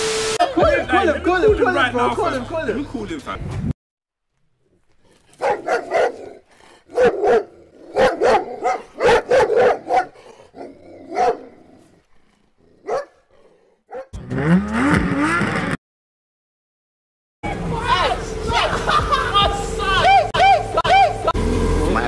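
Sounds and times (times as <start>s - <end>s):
dog barking: 5.4s - 11.6s, 12.8s - 13.3s, 13.9s - 14.1s
dog growling: 10.1s - 14.0s.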